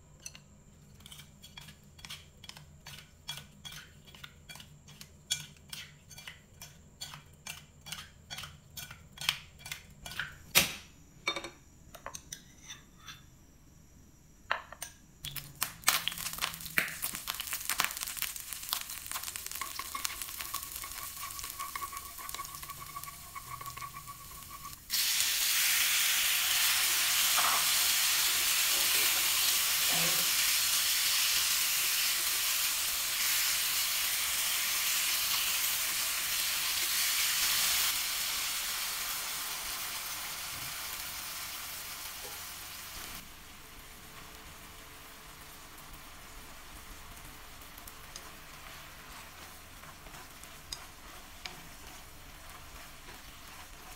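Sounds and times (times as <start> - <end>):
hot oil crackling: 15.2 - 53.9
chicken sizzling in pan: 15.4 - 53.9.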